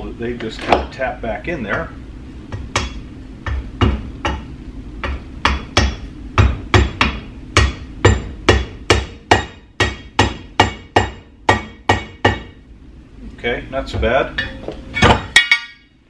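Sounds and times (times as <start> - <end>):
hammer striking metal: 2.5 - 12.6, 14.4 - 15.9.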